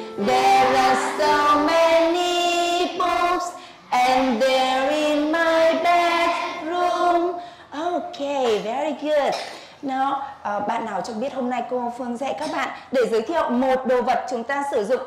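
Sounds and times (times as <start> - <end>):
woman and children singing: 0.0 - 8.1.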